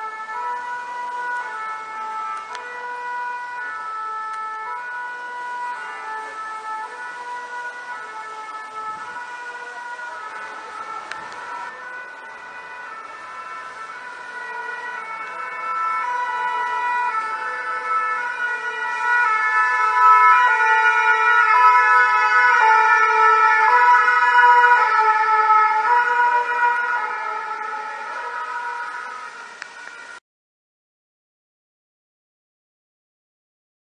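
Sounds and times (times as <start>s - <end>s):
two-tone siren: 0.0s - 30.2s.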